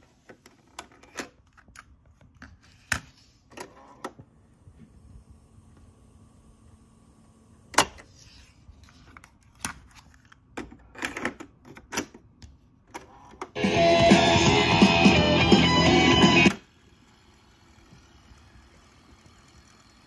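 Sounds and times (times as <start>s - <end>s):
music from tape speakers: 13.6s - 16.7s.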